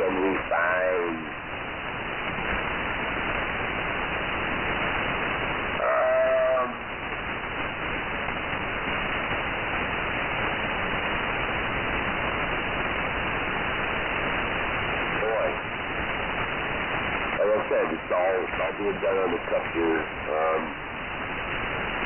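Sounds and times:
radio receiver hiss and static: 0.0 - 22.0.

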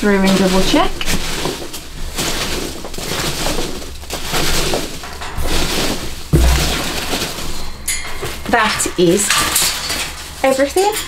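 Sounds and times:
packing material rustling and crunching: 0.0 - 11.0
dull thump: 4.8 - 8.5.

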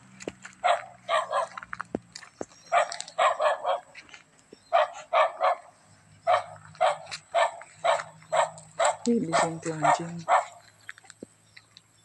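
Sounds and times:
dog barking: 0.6 - 1.6, 2.7 - 3.9, 4.7 - 10.6.

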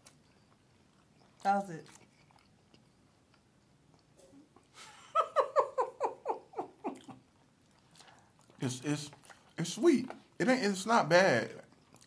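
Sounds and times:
person laughing high-pitched: 4.8 - 7.2.

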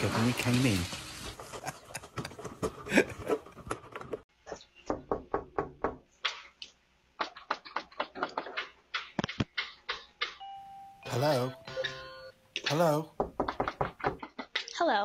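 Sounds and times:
sharp thumps and clicks: 3.4 - 10.4, 12.6 - 14.8
knocking on a door: 4.8 - 6.0, 13.2 - 14.4.

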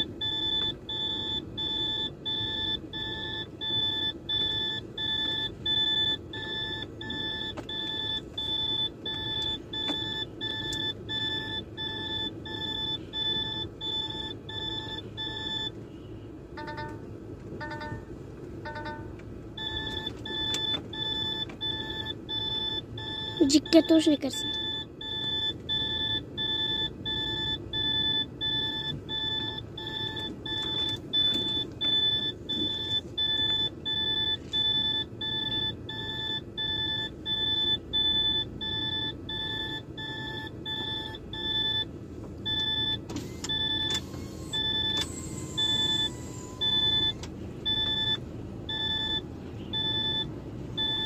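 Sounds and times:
diesel engine idling: 0.0 - 51.0
warning buzzer beeping: 17.6 - 18.0, 18.7 - 31.4.

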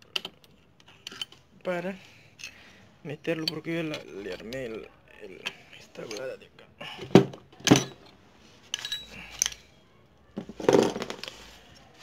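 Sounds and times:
metal parts clinking and scraping: 0.0 - 1.5, 2.4 - 2.6, 3.2 - 4.8, 7.6 - 9.7.

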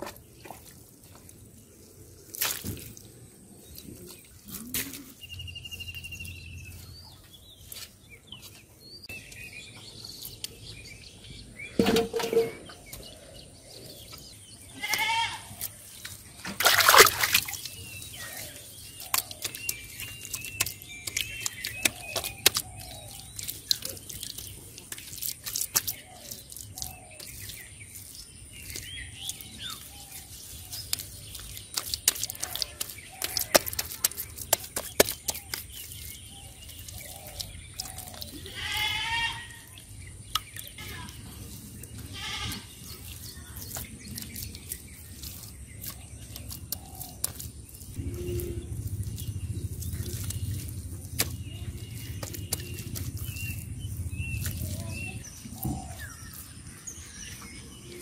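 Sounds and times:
hands patting wet mud: 0.0 - 11.0, 11.8 - 58.0
wavering bleat-like call: 14.8 - 15.5, 38.4 - 39.6
low steady rumble: 48.0 - 56.6.

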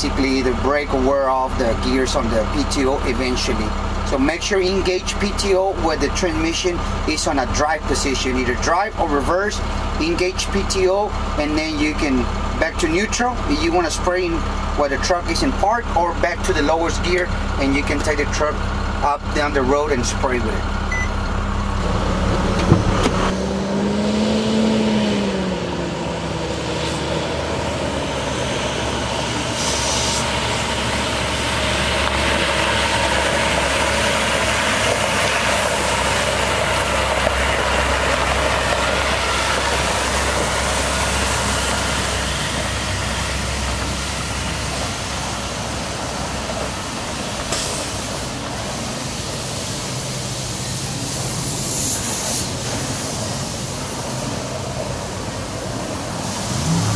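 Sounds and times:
diesel truck engine running: 0.0 - 56.9
water spray hissing: 29.6 - 30.6, 47.2 - 54.1.

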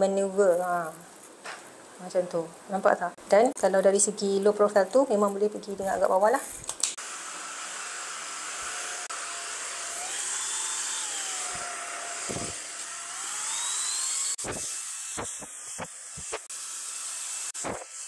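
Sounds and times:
stick vacuum whining: 7.3 - 16.5.

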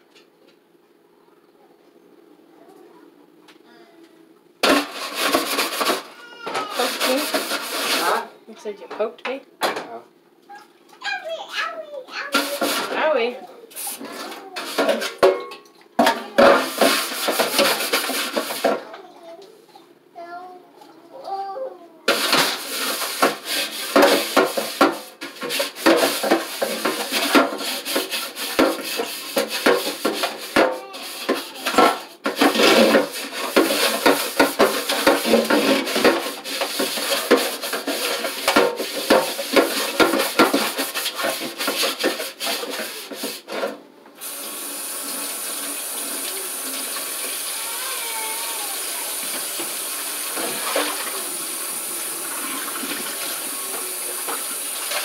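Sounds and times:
dishes knocking and clattering: 4.6 - 8.2, 8.8 - 10.0, 14.1 - 18.9, 22.1 - 43.8, 49.2 - 55.0
water splashing in sink: 4.6 - 8.2, 16.3 - 18.8, 22.1 - 43.6, 44.2 - 55.0
tap water running: 4.6 - 8.3, 15.8 - 18.8, 22.1 - 55.0.

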